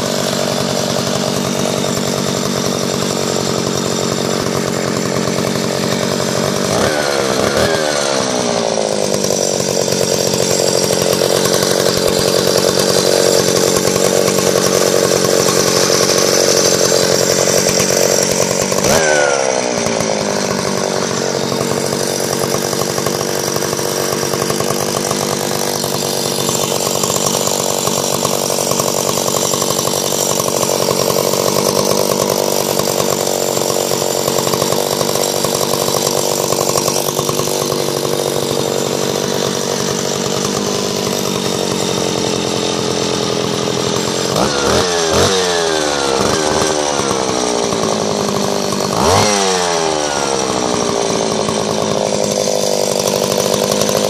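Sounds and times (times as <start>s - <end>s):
chainsaw engine running: 0.0s - 54.0s.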